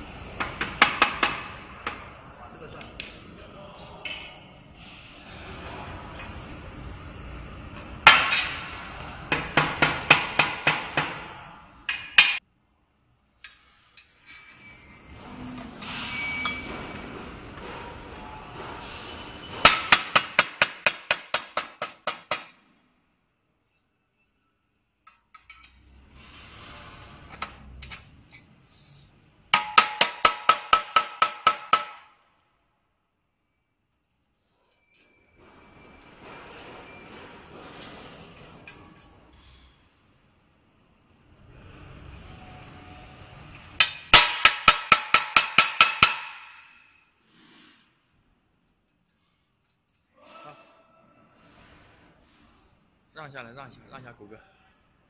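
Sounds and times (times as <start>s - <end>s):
hammer striking steel tube: 11.9s - 12.4s, 29.5s - 32.2s, 43.8s - 47.0s.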